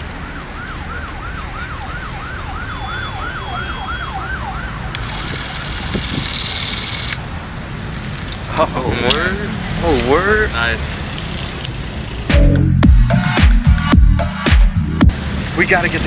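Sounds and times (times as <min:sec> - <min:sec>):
siren yelping: 0:00.2 - 0:07.0.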